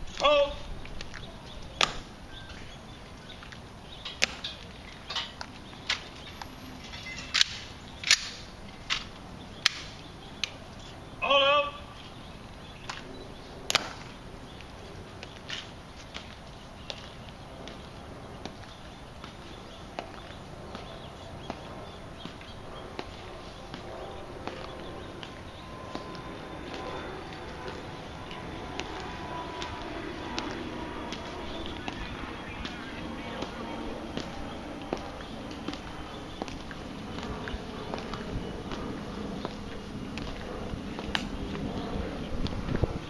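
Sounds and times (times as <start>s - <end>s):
marching footsteps on stone: 13.7s - 27.9s, 28.8s - 42.7s.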